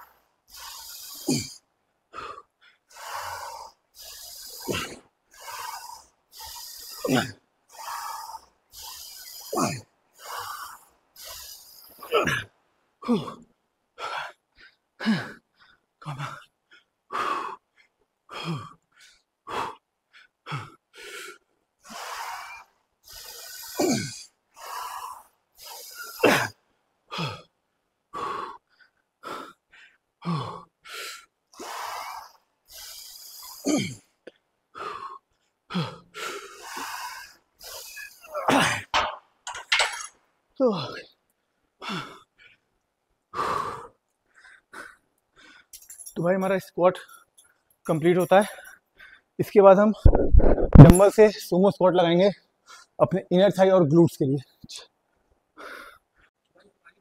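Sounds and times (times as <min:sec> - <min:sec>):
man breathing hard: 0:00.0 - 0:12.4, 0:14.0 - 0:27.5, 0:28.1 - 0:40.1, 0:41.8 - 0:42.6, 0:43.3 - 0:46.2, 0:48.2 - 0:49.4, 0:55.6 - 0:56.3
man grunting: 0:01.2 - 0:01.6, 0:13.1 - 0:13.4, 0:23.8 - 0:24.2, 0:38.3 - 0:38.9, 0:40.6 - 0:41.0.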